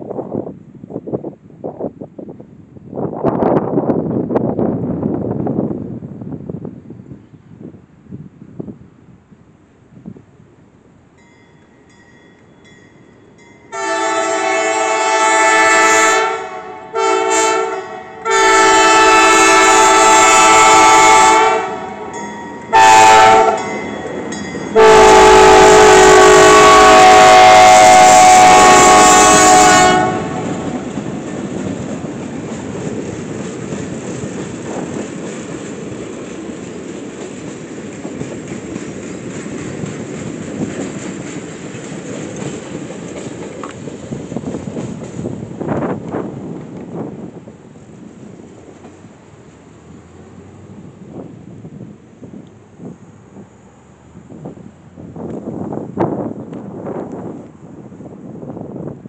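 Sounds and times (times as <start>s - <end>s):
rail cars rumbling and clacking: 0.0s - 59.0s
locomotive air horn blasts: 13.7s - 23.8s, 24.8s - 30.8s.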